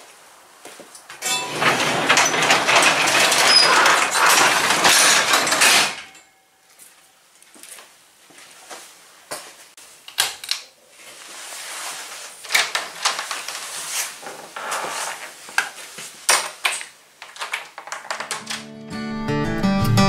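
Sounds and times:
rustling: 0:10.9 - 0:16.3.

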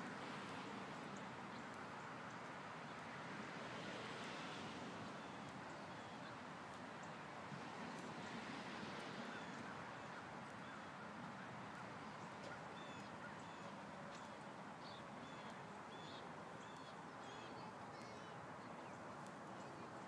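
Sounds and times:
outdoor background hiss: 0:00.0 - 0:20.0.

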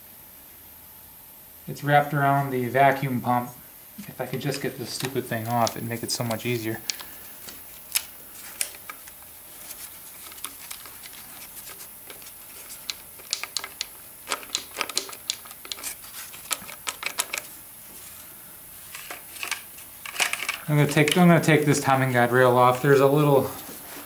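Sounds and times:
metallic clicks and rattles: 0:12.8 - 0:17.5, 0:18.9 - 0:21.3.

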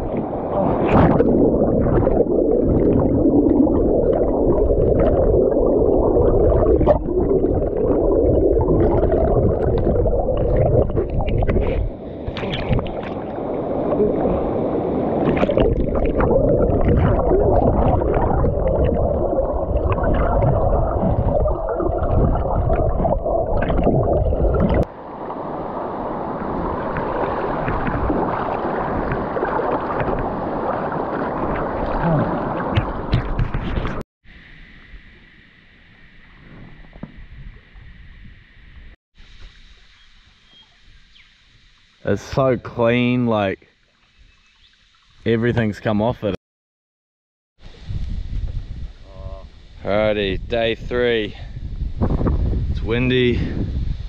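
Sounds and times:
muffled underwater river rumble: 0:00.0 - 0:34.0, 0:47.6 - 0:54.0
shallow water rippling over rock: 0:00.0 - 0:34.0
bubbles clicking and popping: 0:01.1 - 0:13.1, 0:15.3 - 0:24.9.

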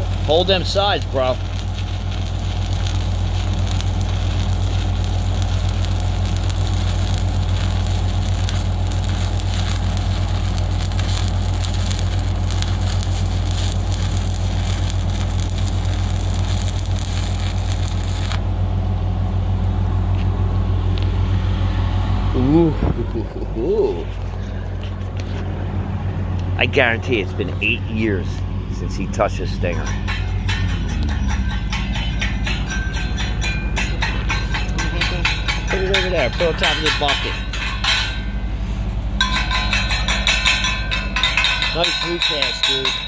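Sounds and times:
welding arc crackling: 0:00.0 - 0:18.4, 0:29.9 - 0:38.4, 0:39.0 - 0:43.0
steady low hum: 0:00.0 - 0:43.0.

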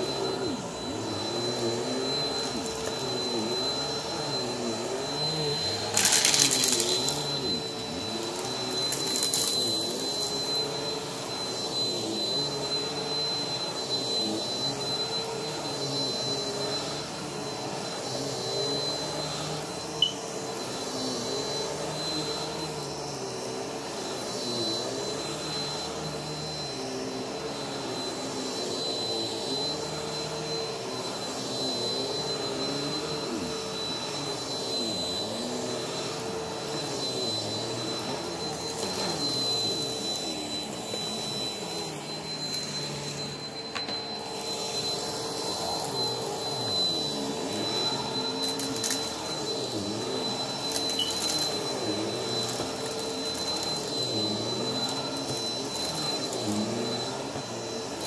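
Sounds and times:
vacuum cleaner running on carpet: 0:00.0 - 0:58.0.

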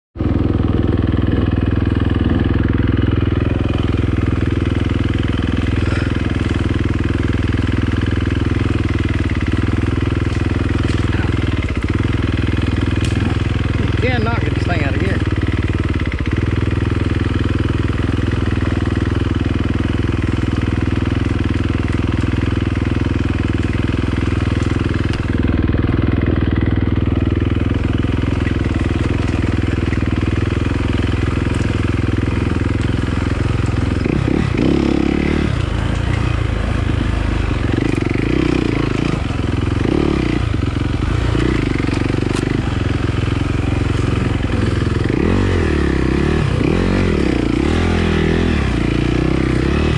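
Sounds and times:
dirt bike engine running: 0:00.2 - 0:49.9.

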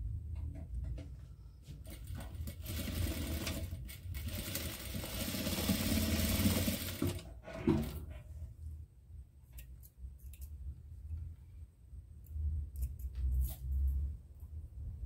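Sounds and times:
sewing machine running: 0:01.9 - 0:08.0.

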